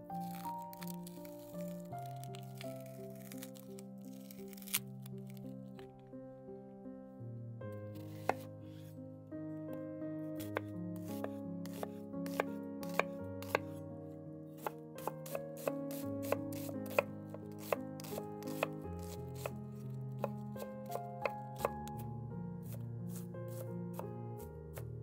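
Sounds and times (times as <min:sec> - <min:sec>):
knife chopping onion on board: 0:08.0 - 0:08.5, 0:10.4 - 0:13.8, 0:14.6 - 0:19.5, 0:20.2 - 0:22.0, 0:22.6 - 0:24.0.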